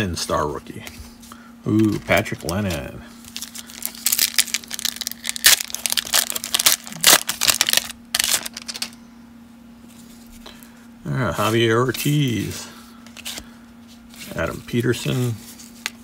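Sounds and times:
wrapper crackling and crinkling: 0:01.8 - 0:09.0.

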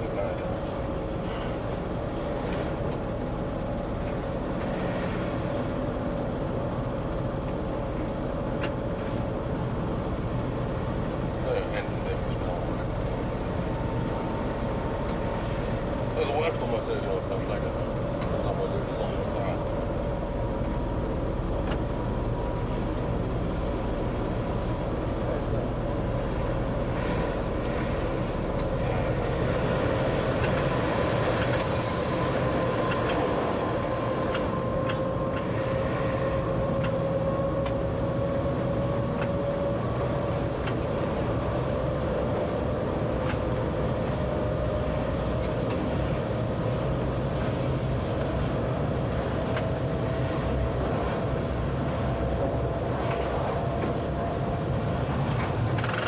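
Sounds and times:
train rumble: 0:00.0 - 0:56.0
high wheel squeal: 0:29.5 - 0:32.9
wheel clicks: 0:55.7 - 0:56.0.

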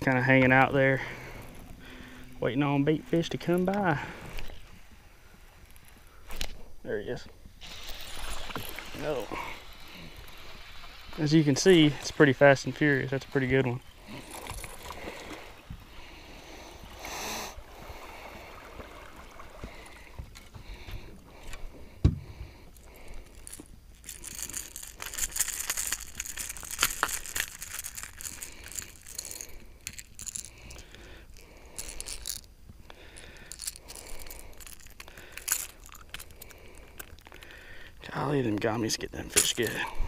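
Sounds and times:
handling scrapes and rattles: 0:22.7 - 0:30.8, 0:31.8 - 0:32.5, 0:33.4 - 0:37.4, 0:38.4 - 0:40.0.

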